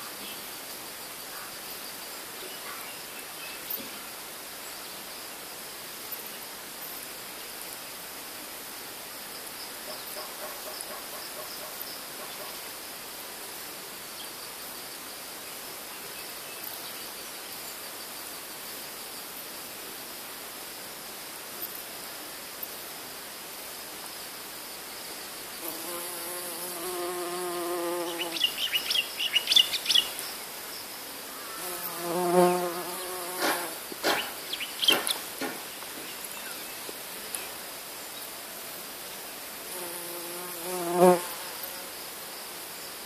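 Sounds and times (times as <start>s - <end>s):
faint high hiss: 0.0s - 43.0s
bumblebee buzzing in flight: 25.6s - 28.6s, 31.5s - 33.9s, 39.7s - 41.9s.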